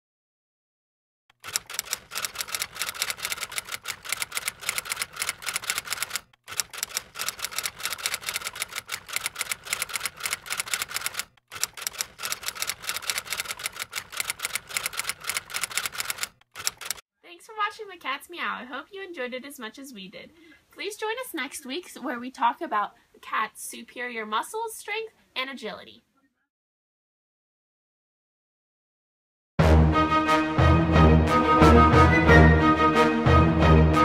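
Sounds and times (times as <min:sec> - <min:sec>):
typewriter keys clacking: 0:01.3 - 0:17.0.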